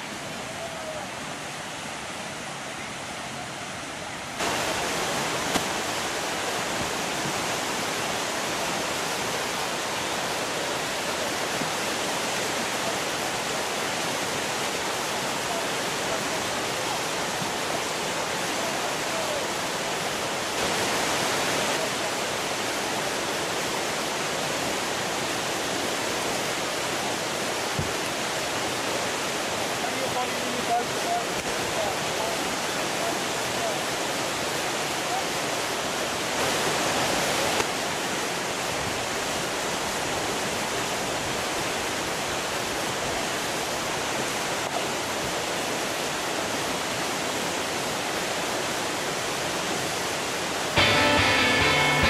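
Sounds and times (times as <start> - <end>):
river rapids rushing: 0.0 - 52.0.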